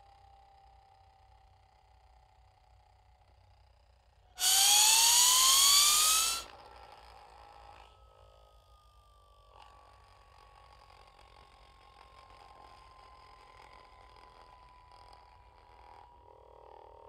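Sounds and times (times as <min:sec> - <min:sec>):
faint falling tone: 0:04.4 - 0:06.5
rising whistle over hissing rush: 0:04.4 - 0:06.5.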